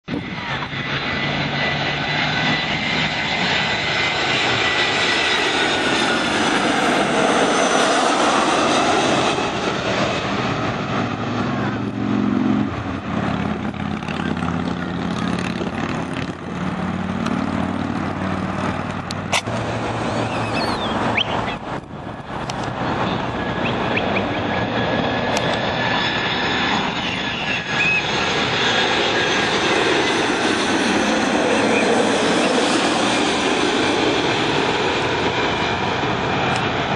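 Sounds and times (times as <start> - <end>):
high engine whine: 0.0 - 36.9
jet airliner passing overhead: 0.0 - 36.9.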